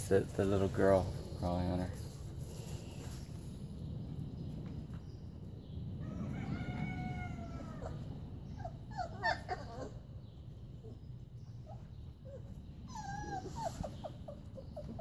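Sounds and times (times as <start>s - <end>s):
puppies yelping: 6.2s - 10.2s, 11.6s - 15.0s
puppy whining: 7.4s - 10.2s, 10.8s - 15.0s.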